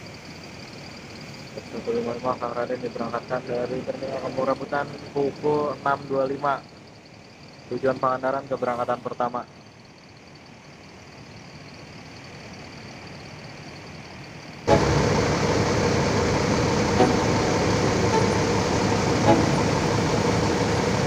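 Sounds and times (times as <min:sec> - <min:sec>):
faint distant engine: 0:00.0 - 0:21.0
diesel bus engine running: 0:13.7 - 0:21.0.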